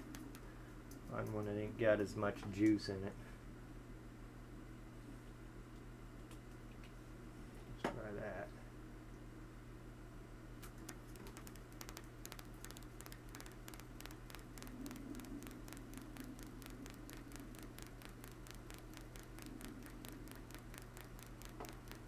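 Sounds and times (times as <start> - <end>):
rotary switch contact clicking: 10.9 - 22.0.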